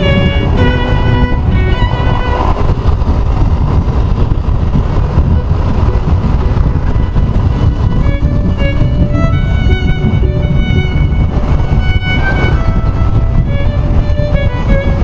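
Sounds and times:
motorcycle wind and road rumble: 0:00.0 - 0:15.0
background music: 0:07.0 - 0:15.0.

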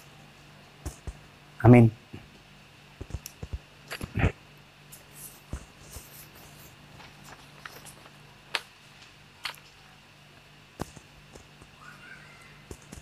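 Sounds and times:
steady low hum: 0:00.0 - 0:13.0
paper handling: 0:05.0 - 0:09.9.

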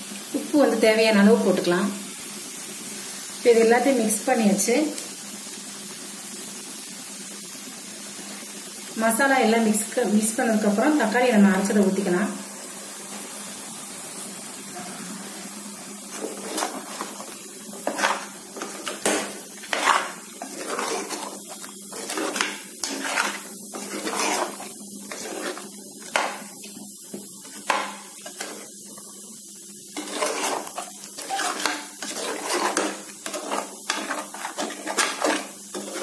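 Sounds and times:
metal ladle scraping pot: 0:16.1 - 0:26.3, 0:30.0 - 0:36.0.

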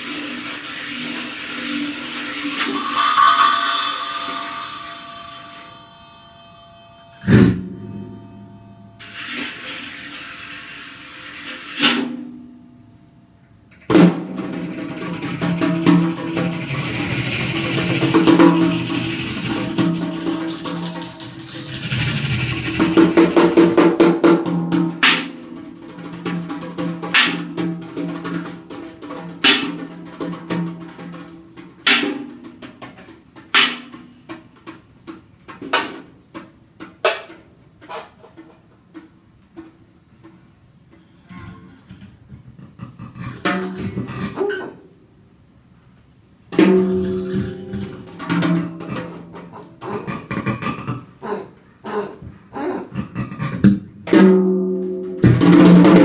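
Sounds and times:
drum kit rolls: 0:00.0 - 0:12.5, 0:13.9 - 0:35.4, 0:46.2 - 0:51.3, 0:53.9 - 0:56.0
low sustained guitar tones: 0:03.4 - 0:10.1, 0:46.6 - 0:48.9.

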